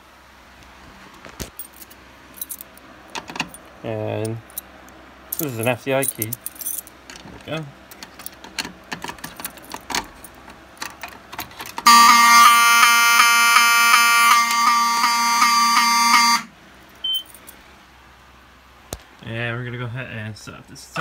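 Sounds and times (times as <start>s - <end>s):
buzzing fire alarm horn: 11.8s - 17.3s
short high beep: 11.9s - 17.3s.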